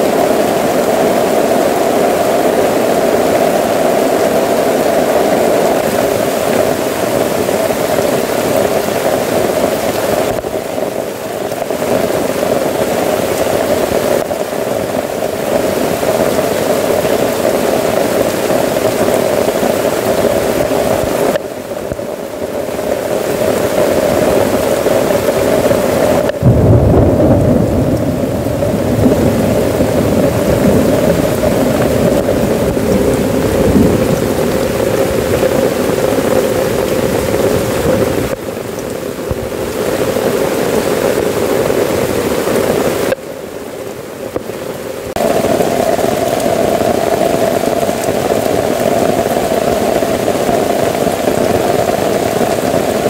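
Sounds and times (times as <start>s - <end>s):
heavy rain on a tent tarp: 0.0s - 53.0s
thunder rumbling: 22.8s - 38.4s, 45.1s - 53.0s.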